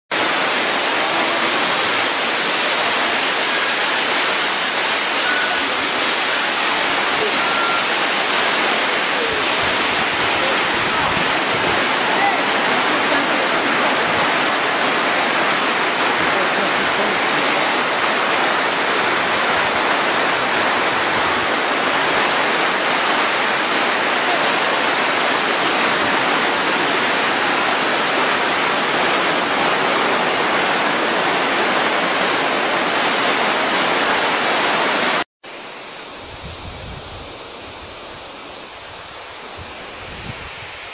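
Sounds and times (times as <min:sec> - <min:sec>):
river and waterfall rushing: 0:00.1 - 0:40.9
wind buffeting microphone: 0:39.6 - 0:40.8.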